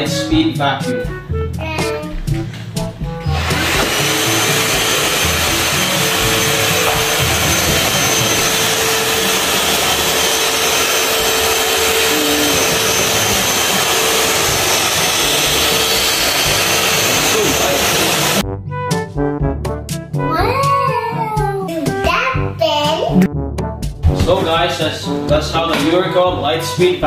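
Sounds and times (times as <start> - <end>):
cordless vacuum whining: 3.2 - 18.4.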